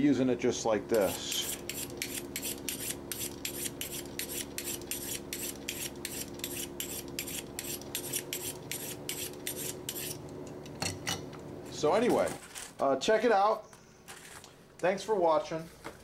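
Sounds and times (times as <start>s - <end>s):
knife scraping on sharpening steel: 1.1s - 10.3s.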